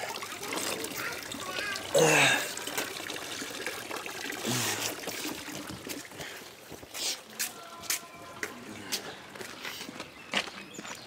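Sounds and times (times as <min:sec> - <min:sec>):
fountain water running into basin: 0:00.0 - 0:07.5.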